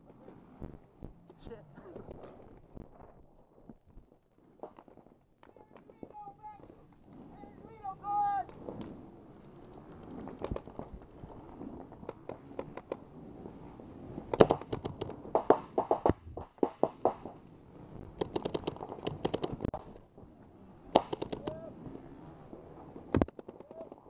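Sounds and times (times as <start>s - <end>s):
paintball markers firing: 8.4s - 11.0s, 12.0s - 13.0s, 14.3s - 17.4s, 18.2s - 19.9s, 20.9s - 21.6s, 23.1s - 24.0s.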